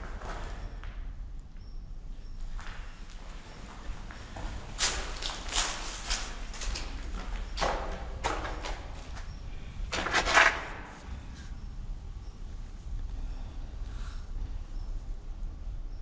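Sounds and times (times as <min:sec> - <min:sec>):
footsteps on gritty concrete floor: 0:00.0 - 0:01.2, 0:02.2 - 0:11.4.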